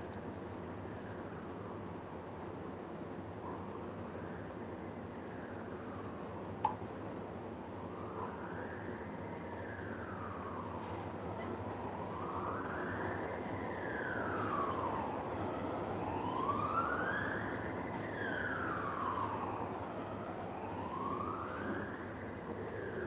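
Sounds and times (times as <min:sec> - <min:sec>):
wailing siren: 0:07.6 - 0:23.0.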